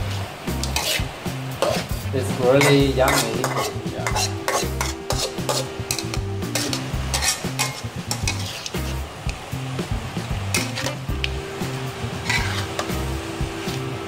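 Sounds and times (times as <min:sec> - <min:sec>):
food sizzling in pan: 0:00.0 - 0:14.0
metal spatula scraping pan: 0:00.1 - 0:02.0, 0:02.6 - 0:09.0, 0:10.5 - 0:11.0, 0:12.2 - 0:13.1.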